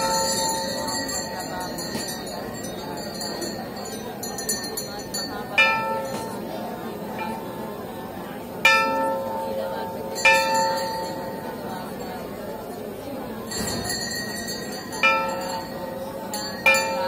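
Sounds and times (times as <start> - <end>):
small bells jingling: 0.0 - 6.2, 13.4 - 17.0
metal bell ringing: 0.0 - 6.3, 13.5 - 17.0
crowd talking: 0.0 - 17.0.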